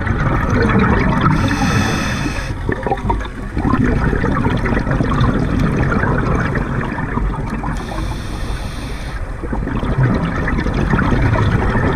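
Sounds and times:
exhaled bubbles gurgling underwater: 0:00.0 - 0:11.9
regulator hissing inhale: 0:01.3 - 0:02.6, 0:07.7 - 0:09.3.

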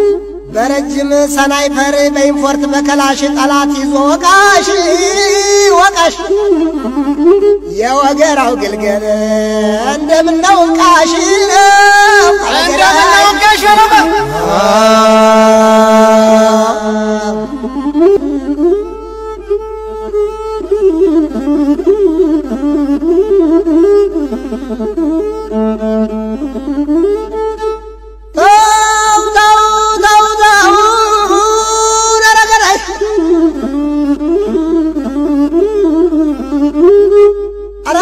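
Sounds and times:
bowed string melody: 0:01.7 - 0:28.6, 0:32.6 - 0:38.0.

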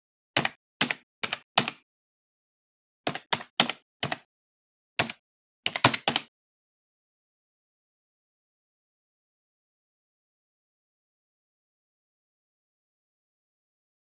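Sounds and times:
computer keyboard keystrokes: 0:00.4 - 0:01.8, 0:03.1 - 0:04.3, 0:05.0 - 0:06.3.

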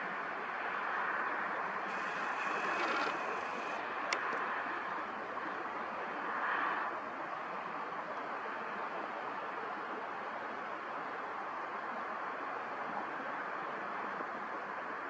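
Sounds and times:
outdoor background hiss: 0:00.0 - 0:07.1.

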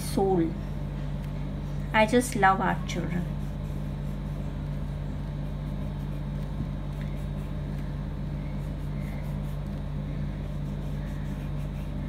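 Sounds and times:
steady low hum: 0:00.0 - 0:12.0
pencil scratching on paper: 0:03.0 - 0:12.0.

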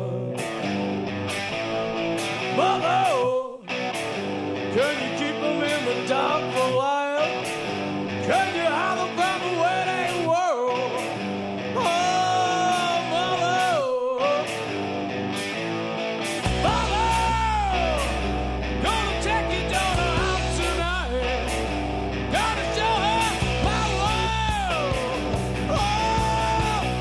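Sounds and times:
distorted electric guitar: 0:00.0 - 0:27.0
drums and cymbal hits: 0:16.4 - 0:18.2, 0:22.4 - 0:27.0.

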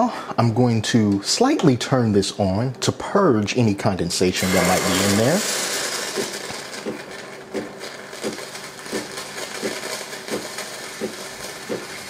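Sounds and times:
steam wand hissing: 0:04.4 - 0:12.0.

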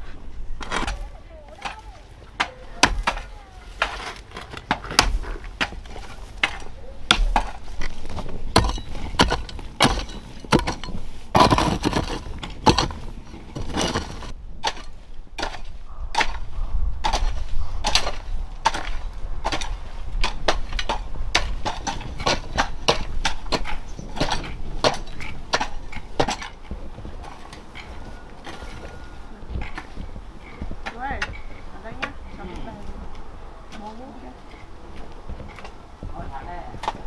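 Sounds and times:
scraping and rustling: 0:00.0 - 0:37.0
objects knocking and clattering: 0:03.8 - 0:15.6.

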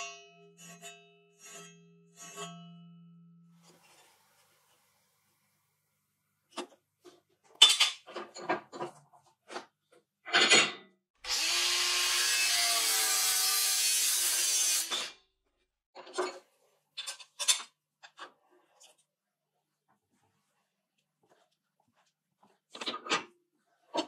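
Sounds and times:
angle grinder cutting steel: 0:11.2 - 0:15.2.

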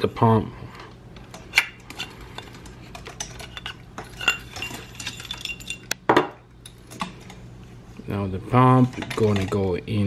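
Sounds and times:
metal parts clicking and clinking: 0:01.3 - 0:06.0, 0:08.8 - 0:09.7.

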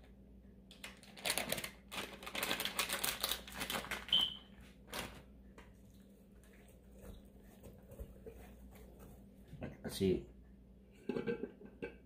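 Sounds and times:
plastic packet crinkling: 0:00.7 - 0:05.3.

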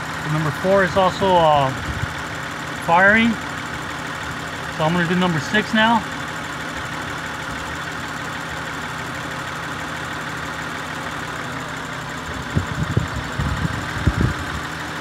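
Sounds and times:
car engine idling: 0:00.0 - 0:15.0
irregular low thumps: 0:12.4 - 0:14.5.

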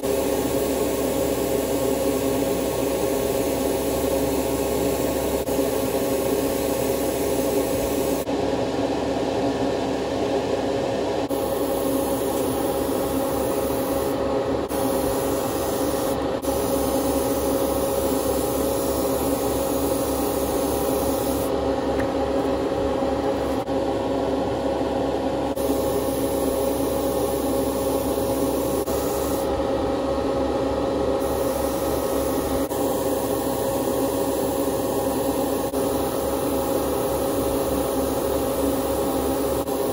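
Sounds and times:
airbrush spraying hiss: 0:11.3 - 0:21.5, 0:25.6 - 0:29.5, 0:31.2 - 0:33.0.

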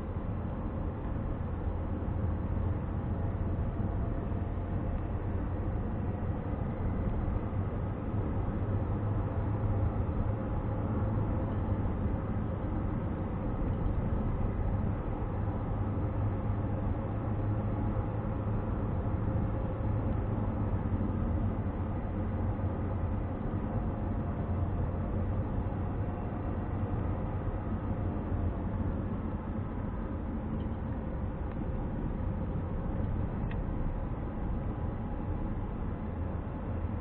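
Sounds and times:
car engine drone inside cabin: 0:00.0 - 0:37.0.

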